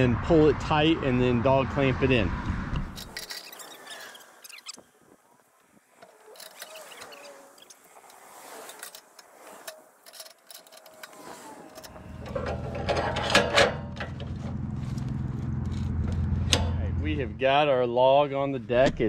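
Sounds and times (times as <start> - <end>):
metal clicks and scrapes: 2.8 - 4.8, 6.0 - 16.8
metal clamp clattering: 8.8 - 14.6
low engine hum: 11.9 - 17.6.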